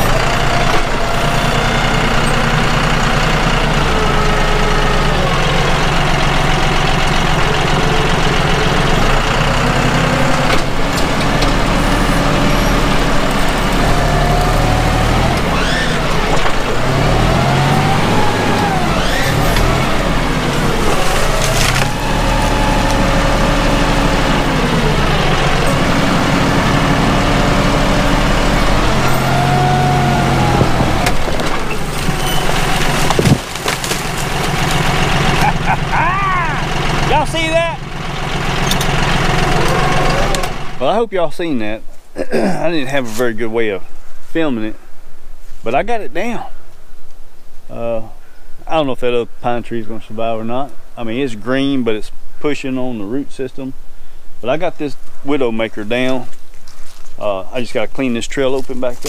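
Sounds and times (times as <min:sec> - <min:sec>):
tractor diesel engine under load: 0:00.0 - 0:43.8, 0:54.4 - 0:59.0
wood cracking: 0:09.2 - 0:26.4, 0:28.2 - 0:35.8.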